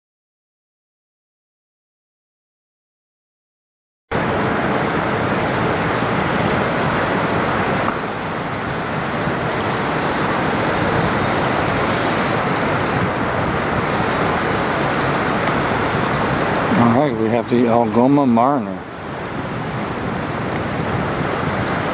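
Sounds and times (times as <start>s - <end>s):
waves washing against rocky shore: 4.1s - 21.9s
wind on microphone: 4.1s - 21.9s.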